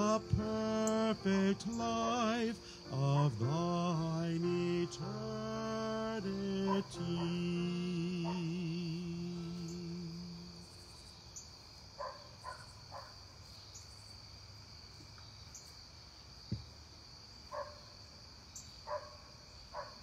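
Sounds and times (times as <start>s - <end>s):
held keyboard chord: 0.0s - 10.6s
crickets chirping: 0.0s - 20.0s
thump: 16.5s - 16.7s.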